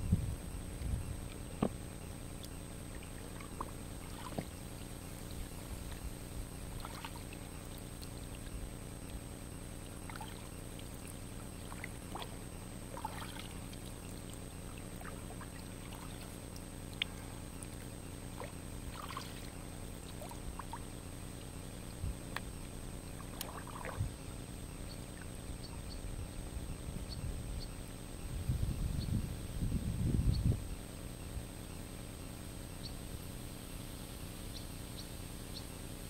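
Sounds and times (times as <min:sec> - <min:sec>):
steady low hum: 0:00.0 - 0:36.0
small paddle splashes: 0:02.4 - 0:06.0, 0:06.7 - 0:09.2, 0:09.8 - 0:20.9, 0:23.2 - 0:24.1
water dripping from paddles: 0:10.0 - 0:20.8, 0:23.2 - 0:24.0.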